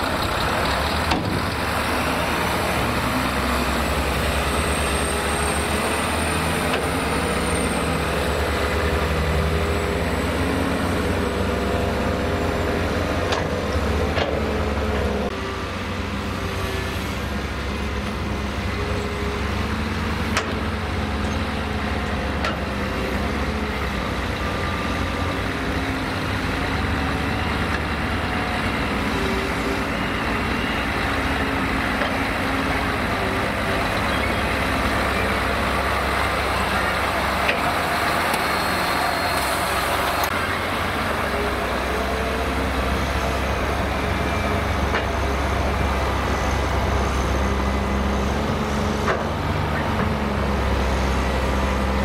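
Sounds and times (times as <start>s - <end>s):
truck diesel engine passing: 0.0s - 52.0s.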